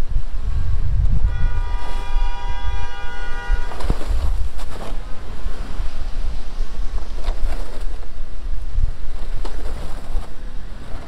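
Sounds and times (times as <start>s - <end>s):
wind rumbling on microphone: 0.0s - 11.0s
vehicle horn honking: 1.2s - 4.2s.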